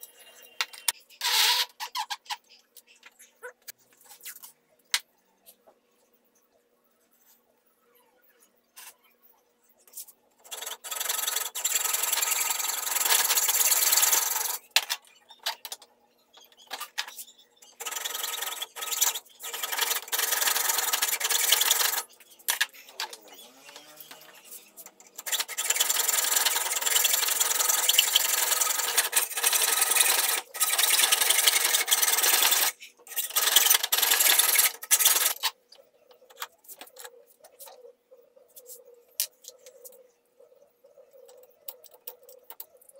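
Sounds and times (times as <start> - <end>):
hacksaw cutting metal pipe: 25.2 - 35.5.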